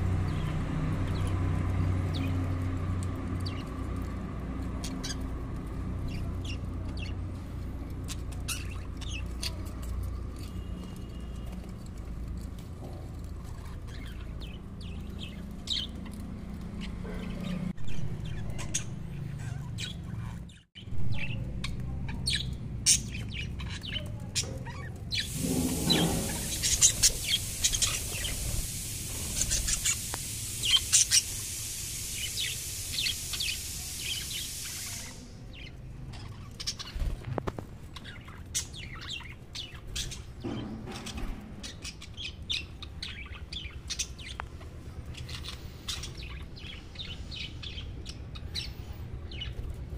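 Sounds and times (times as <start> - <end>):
budgerigars chirping: 4.6 - 10.5, 16.8 - 28.7, 29.3 - 31.4, 45.0 - 49.6
steady hiss: 25.1 - 35.4.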